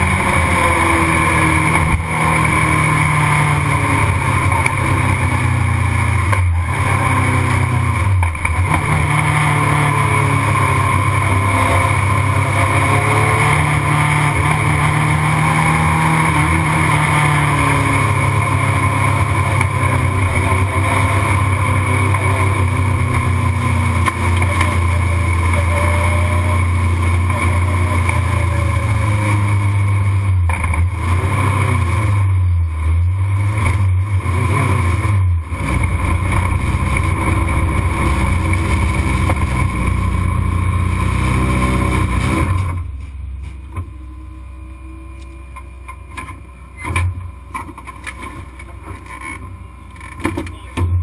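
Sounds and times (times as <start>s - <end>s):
race car engine running: 0.0s - 51.0s.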